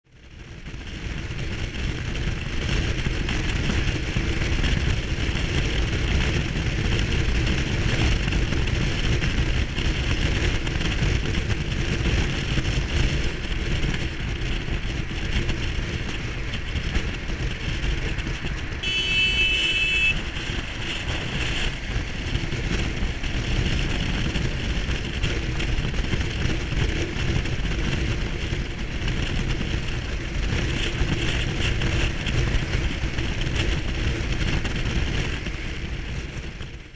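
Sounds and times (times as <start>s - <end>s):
motorcycle engine cruising: 0.1s - 36.9s
heavy wind rush: 1.2s - 36.9s
horn beep: 18.8s - 20.2s.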